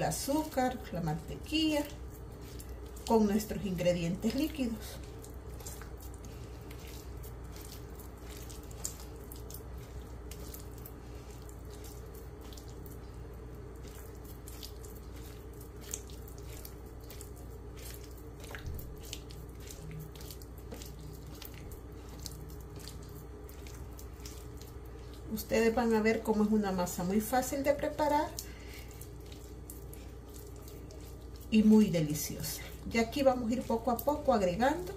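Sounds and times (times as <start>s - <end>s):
hand squishing wet dough: 0.0s - 34.9s.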